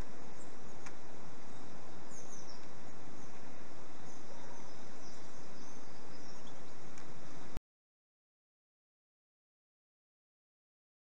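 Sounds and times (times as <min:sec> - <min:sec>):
faint high bird chirps: 0:00.0 - 0:07.6
outdoor background noise: 0:00.0 - 0:07.6.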